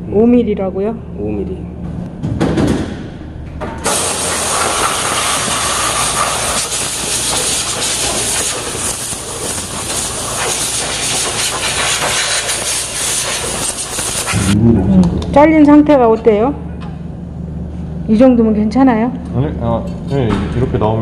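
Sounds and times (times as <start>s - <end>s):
air blow gun hissing: 3.8s - 14.6s.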